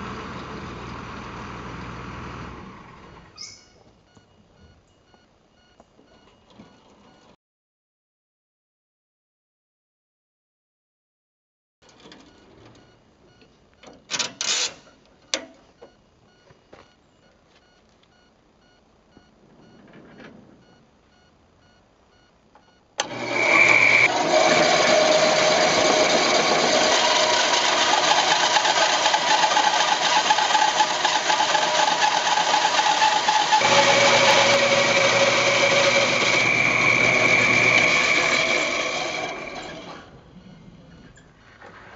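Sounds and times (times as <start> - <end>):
machine running with whine: 23.0 - 41.2.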